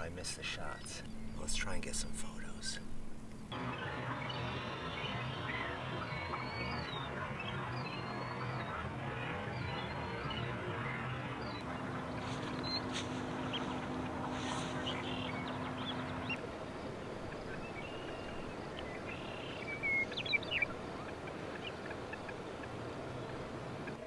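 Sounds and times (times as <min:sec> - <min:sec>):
steady background hiss: 0:00.0 - 0:24.0
steady low hum: 0:00.0 - 0:24.0
short bird calls: 0:03.5 - 0:16.4.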